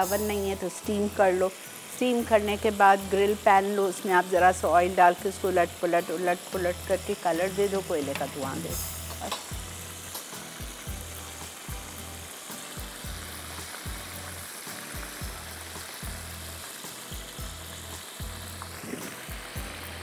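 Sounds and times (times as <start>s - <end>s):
oil sizzling in a pan: 0.0s - 20.0s
soft background music: 0.0s - 20.0s.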